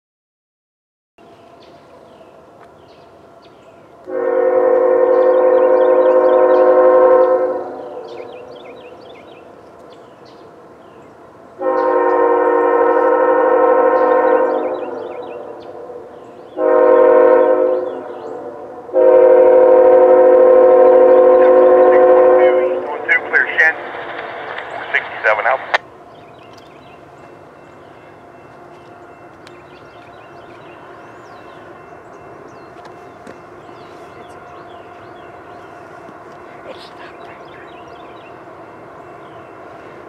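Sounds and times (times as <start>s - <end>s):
locomotive air horn blasts: 4.1s - 8.3s, 11.6s - 15.9s, 16.6s - 23.5s.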